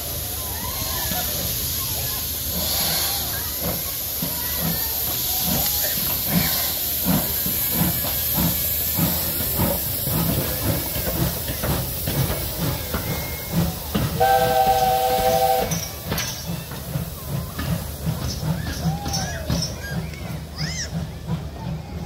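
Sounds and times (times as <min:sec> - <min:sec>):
locomotive exhaust beats: 0:00.0 - 0:22.0
steam hissing: 0:00.0 - 0:22.0
steam whistle chord: 0:14.2 - 0:15.8.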